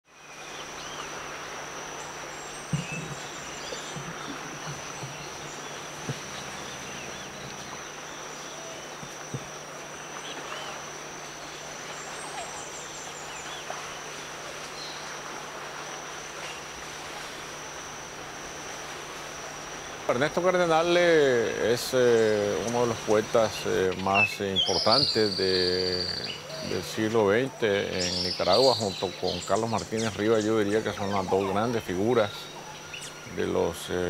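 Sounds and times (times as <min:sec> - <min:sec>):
insects trilling: 0:00.1 - 0:34.0
soft knocks: 0:02.7 - 0:05.4, 0:09.0 - 0:09.6.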